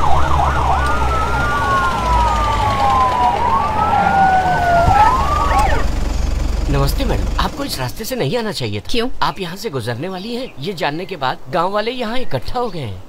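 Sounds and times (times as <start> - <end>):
siren yelping and wailing: 0.0 - 7.7
low rumble: 0.0 - 8.4.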